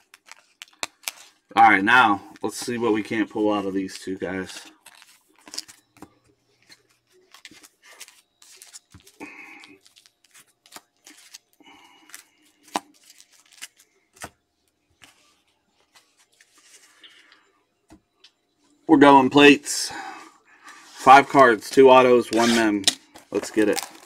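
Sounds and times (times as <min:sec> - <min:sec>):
cards being handled: 0:00.0 - 0:01.4, 0:02.3 - 0:14.4, 0:15.0 - 0:17.2, 0:22.2 - 0:24.0
plastic tearing and crinkling: 0:00.0 - 0:01.4, 0:07.2 - 0:14.3, 0:22.3 - 0:24.0.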